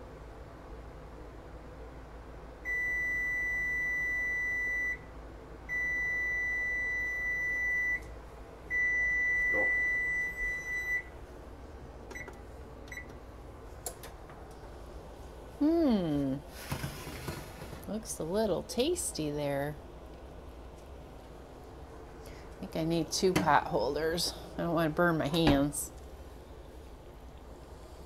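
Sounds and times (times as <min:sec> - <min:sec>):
oven timer high beeps: 0:02.6 - 0:05.1, 0:05.7 - 0:08.1, 0:08.7 - 0:11.1, 0:12.1 - 0:13.1.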